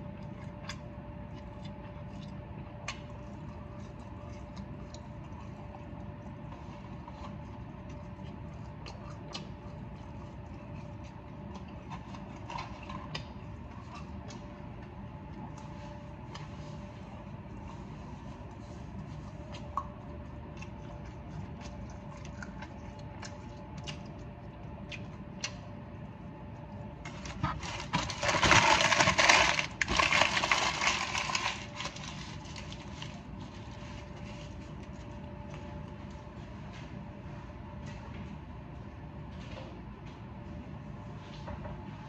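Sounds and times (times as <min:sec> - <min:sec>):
chewing with mouth clicks: 0:00.0 - 0:27.7
paper packaging crinkling: 0:27.1 - 0:34.5.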